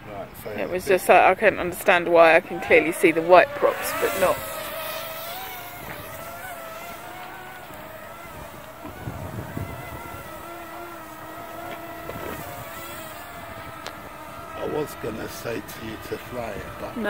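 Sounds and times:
drone propellers whining: 0:00.0 - 0:17.0
wind buffeting microphone: 0:00.0 - 0:17.0.

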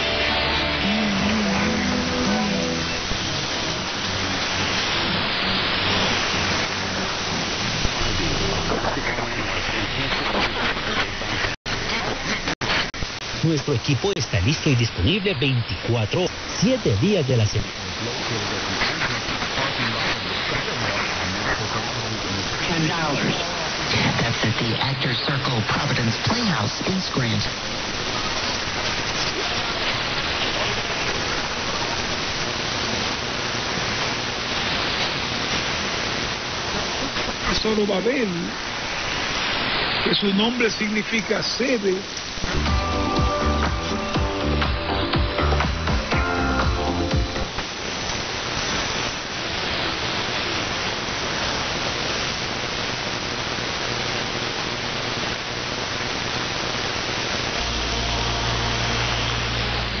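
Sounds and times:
steady low hum: 0:00.0 - 0:40.1
radio static hiss: 0:00.0 - 1:00.0.

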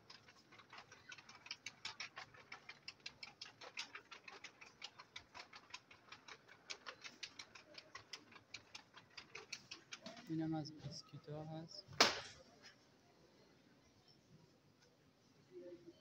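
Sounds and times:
faint rapid ticking: 0:00.0 - 0:10.7.

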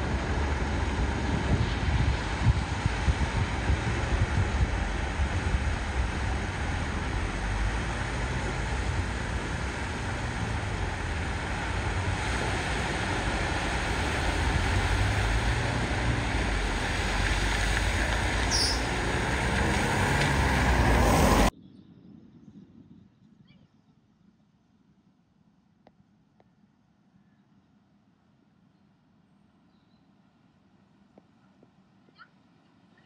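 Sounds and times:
rushing water: 0:00.0 - 0:21.5
vehicle engine running: 0:00.0 - 0:21.5.

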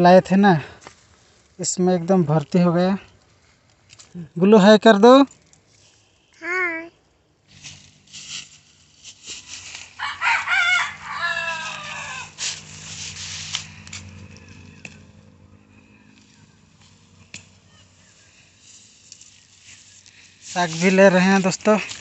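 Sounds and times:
rooster crowing: 0:09.9 - 0:12.9.

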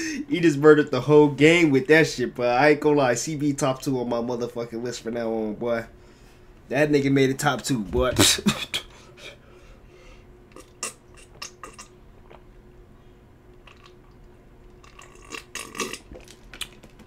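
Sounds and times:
mouth and throat sounds: 0:10.5 - 0:12.5, 0:14.8 - 0:17.0
person gulping and swallowing: 0:10.5 - 0:12.5, 0:13.6 - 0:17.0.

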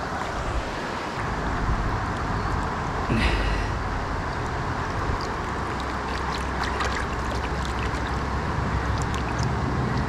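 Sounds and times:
river current rushing: 0:00.0 - 0:02.1, 0:03.2 - 0:10.0
water splashing and swishing: 0:04.4 - 0:10.0.

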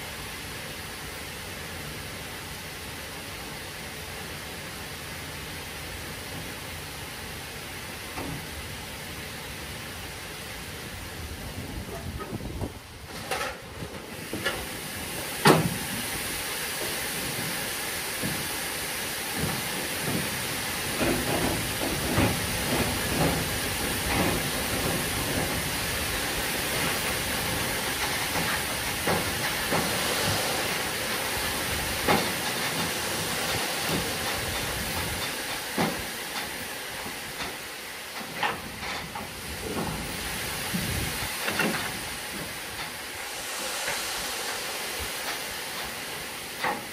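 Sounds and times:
sand pouring with hissing rush: 0:14.0 - 0:46.9
knocks on hopper wagon: 0:15.4 - 0:15.8, 0:19.3 - 0:25.6.

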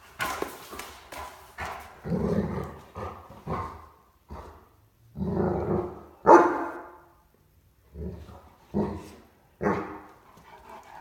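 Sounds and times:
puppy barking deeply: 0:05.8 - 0:07.0.

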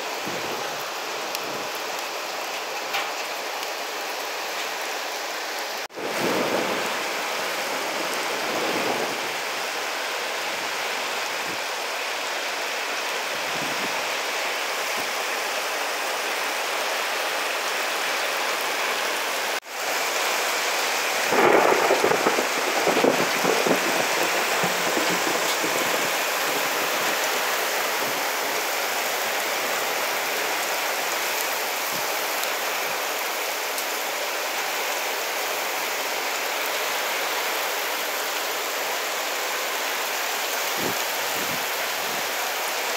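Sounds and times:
heavy rain on corrugated roofs: 0:00.0 - 0:42.9
thunder rumble: 0:21.3 - 0:27.3.

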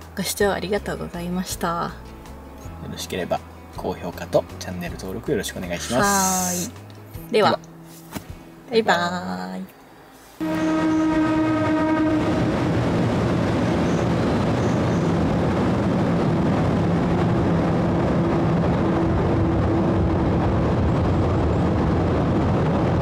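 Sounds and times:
train horn: 0:10.4 - 0:15.2
train wheels rumbling on rails: 0:10.4 - 0:23.0.

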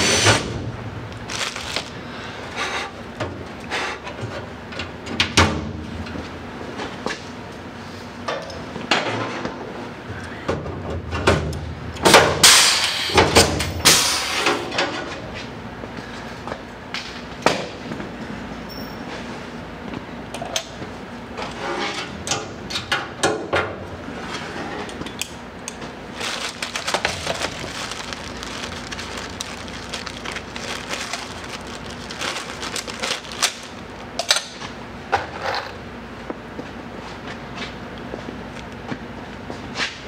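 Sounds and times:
steady low hum: 0:00.0 - 0:05.1, 0:14.6 - 0:39.8
metal parts clicking and rattling: 0:26.2 - 0:34.6.

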